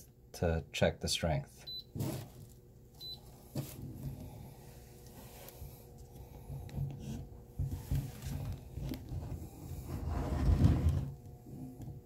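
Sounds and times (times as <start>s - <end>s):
faint steady hum: 0.0s - 12.0s
rubbing and scraping: 6.9s - 11.2s.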